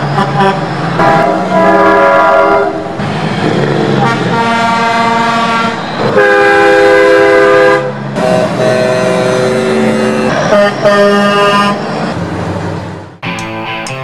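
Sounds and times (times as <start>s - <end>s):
diesel engines running: 0.0s - 14.0s
truck air horn blasts: 0.1s - 2.8s, 4.0s - 11.8s.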